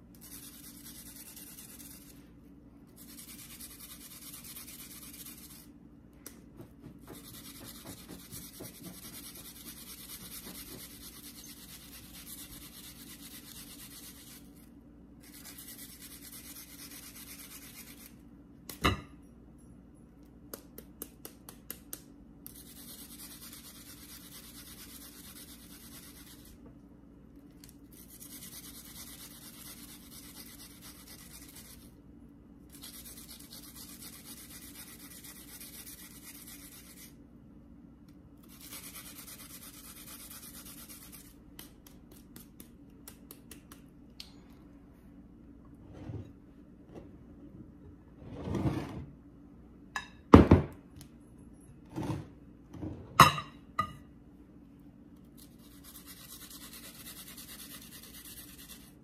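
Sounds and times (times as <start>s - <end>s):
onion being grated: 0.1s - 2.2s, 2.9s - 5.7s, 7.0s - 18.2s, 22.4s - 26.6s, 27.9s - 32.0s, 32.7s - 37.2s, 38.4s - 42.7s, 55.4s - 59.0s.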